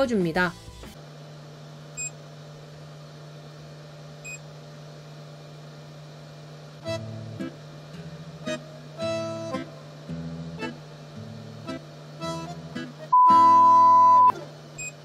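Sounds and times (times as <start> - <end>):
low printer hum: 0.7 - 13.2
short high touchscreen beeps: 13.1 - 14.9.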